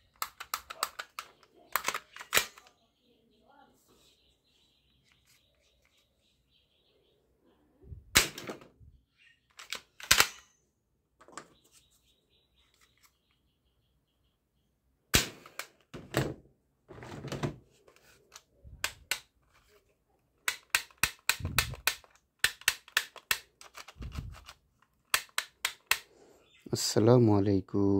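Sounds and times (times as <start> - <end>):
toy dart pistol shots: 15.2 - 15.6, 20.5 - 23.5.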